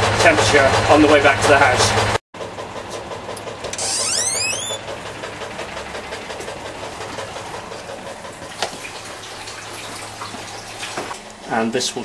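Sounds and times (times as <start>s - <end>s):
door opening with squeak: 3.7s - 4.9s.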